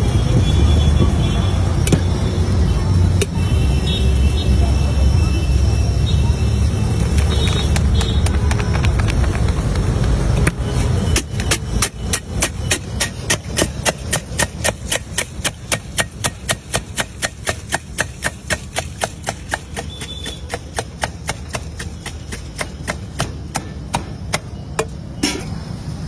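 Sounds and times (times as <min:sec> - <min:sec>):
puris crushed against steel bowl: 0:11.2 - 0:25.5.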